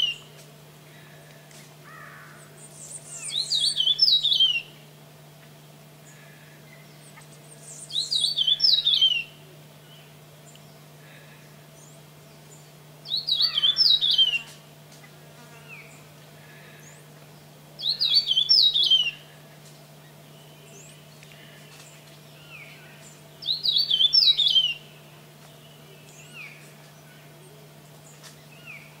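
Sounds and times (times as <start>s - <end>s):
finch twittering song: 0.0s - 0.4s, 2.0s - 4.8s, 6.2s - 10.9s, 11.8s - 14.6s, 16.8s - 19.3s, 20.0s - 27.3s
steady low hum: 0.0s - 29.0s
faint bird call notes: 6.0s - 17.2s.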